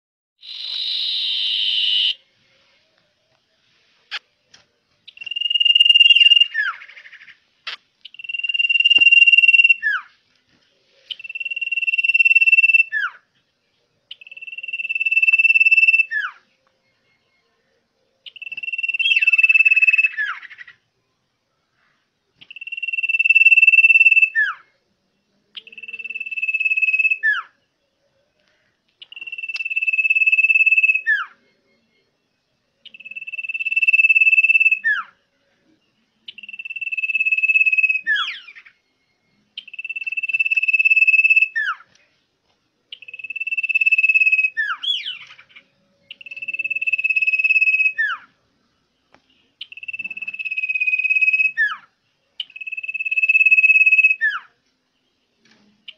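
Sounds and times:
bird whistling song: 0:00.4 - 0:10.2, 0:11.0 - 0:13.3, 0:14.1 - 0:16.6, 0:18.2 - 0:20.8, 0:22.4 - 0:24.7, 0:25.5 - 0:27.7, 0:29.0 - 0:35.2, 0:36.1 - 0:42.0, 0:42.9 - 0:48.4, 0:49.2 - 0:54.6.

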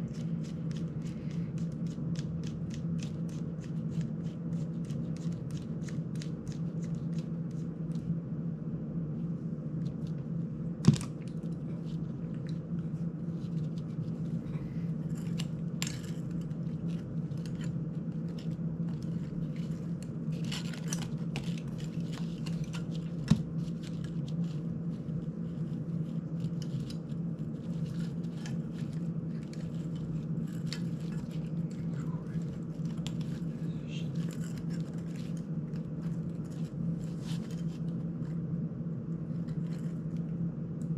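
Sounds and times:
steady low hum: 0:00.0 - 0:40.9.

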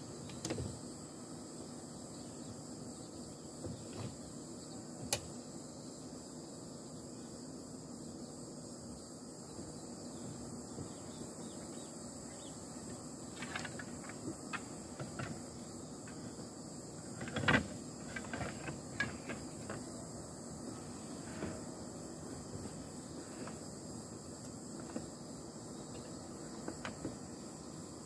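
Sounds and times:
steady high hiss: 0:00.0 - 0:28.0
wooden clacks: 0:12.9 - 0:16.4, 0:17.0 - 0:19.9
wooden table clicking and knocking: 0:17.2 - 0:19.9.

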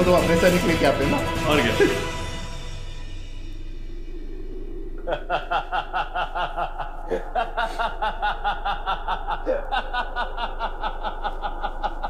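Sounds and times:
man laughing hard: 0:05.0 - 0:12.0.

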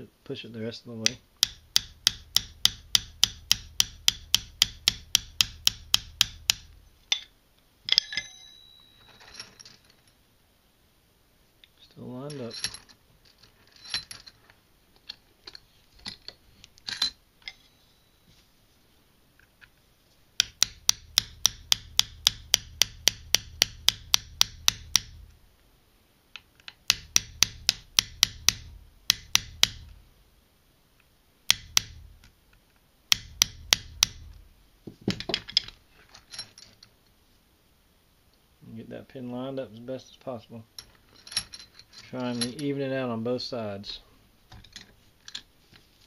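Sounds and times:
hammer tapping a punch: 0:01.1 - 0:06.7, 0:20.4 - 0:25.2, 0:26.9 - 0:29.9, 0:31.5 - 0:32.0, 0:33.1 - 0:34.3.

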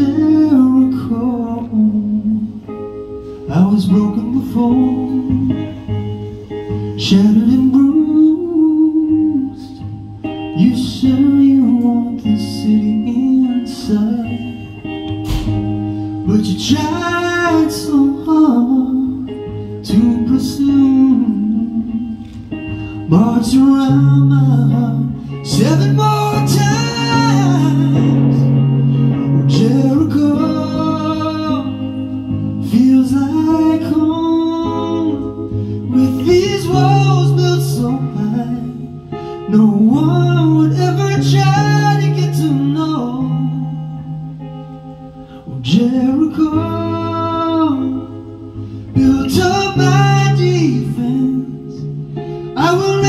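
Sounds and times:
man singing: 0:00.0 - 0:44.3, 0:45.3 - 0:53.0
acoustic guitar: 0:00.0 - 0:53.0.

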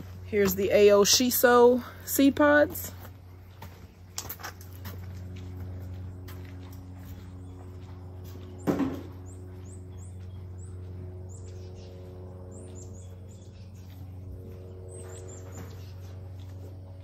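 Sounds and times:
steady low hum: 0:00.0 - 0:17.0
birds chirping: 0:05.9 - 0:16.6.

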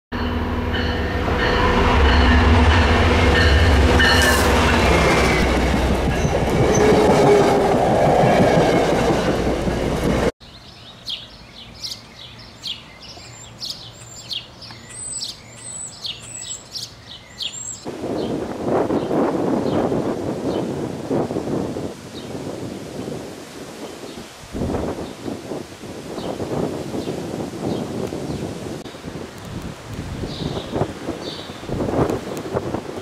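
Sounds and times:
train rumbling on rails: 0:00.2 - 0:10.4
birds chirping: 0:10.4 - 0:19.9, 0:30.2 - 0:33.0.

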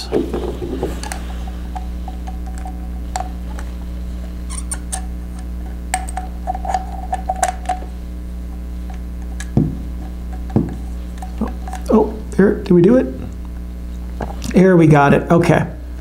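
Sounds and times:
steady low hum: 0:00.0 - 0:16.0
firm knock: 0:09.6 - 0:09.8.

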